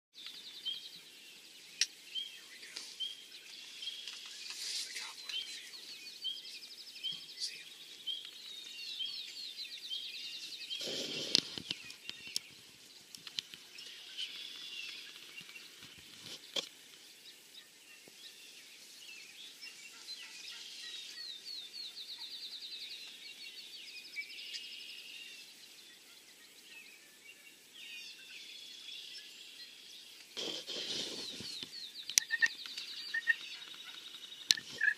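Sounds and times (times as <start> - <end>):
songbirds chirping and trilling: 0.1 - 34.9
low rustle: 2.5 - 6.0, 30.1 - 31.8
sharp clicks: 13.1 - 13.7, 31.6 - 34.8.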